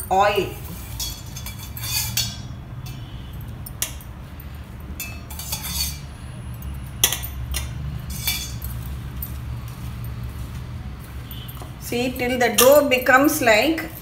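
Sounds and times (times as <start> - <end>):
spoon clinking against steel bowl: 0.9 - 9.4.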